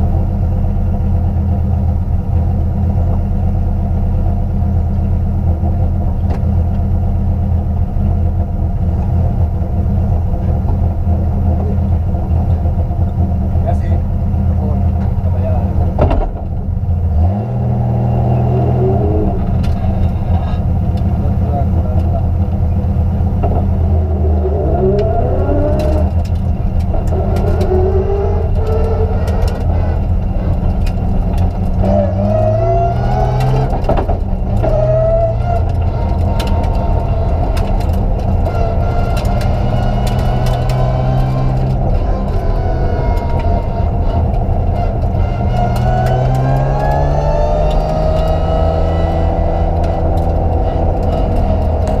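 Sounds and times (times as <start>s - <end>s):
car engine revving: 0.0s - 52.0s
clicks and rattles: 24.9s - 32.0s, 33.3s - 48.4s.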